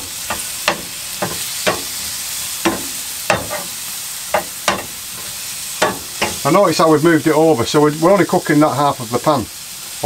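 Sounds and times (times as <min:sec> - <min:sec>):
metal spatula scraping a pan: 0:00.0 - 0:06.6
tomatoes and egg sizzling in a pan: 0:00.0 - 0:10.0.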